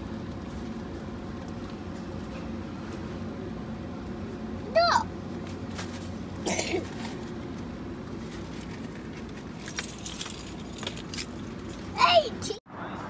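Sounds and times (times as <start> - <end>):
steady low hum: 0.0 - 12.3
keys jangling: 9.6 - 12.0.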